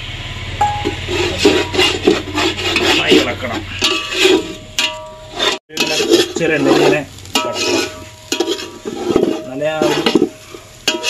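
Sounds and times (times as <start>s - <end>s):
metal spoon scraping a pan: 0.7s - 11.0s
utensil clinking on pot: 3.8s - 11.0s.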